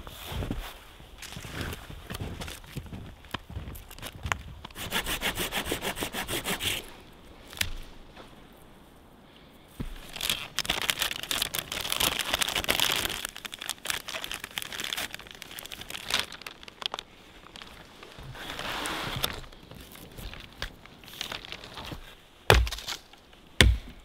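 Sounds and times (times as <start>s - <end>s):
space blanket crinkling: 9.8s - 22.2s.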